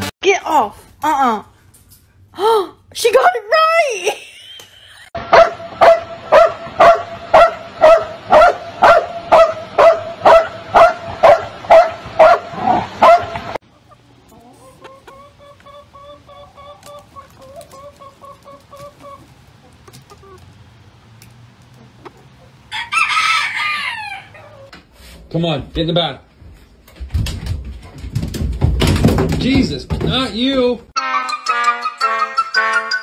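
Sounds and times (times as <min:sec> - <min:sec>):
dog barking: 0:05.3 - 0:13.4
hen clucking: 0:13.6 - 0:24.8.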